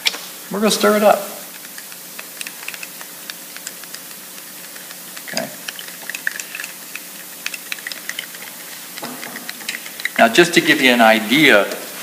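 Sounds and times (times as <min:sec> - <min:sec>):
faint steady hiss: 0:00.0 - 0:12.0
stick scraping and tapping cup: 0:01.5 - 0:10.5.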